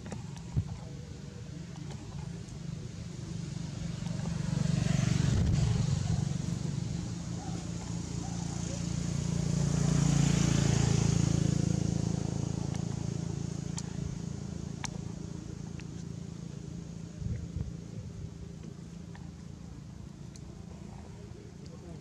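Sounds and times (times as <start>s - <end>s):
vehicle engine humming: 0.0s - 22.0s
faint sharp clicks: 20.2s - 20.6s.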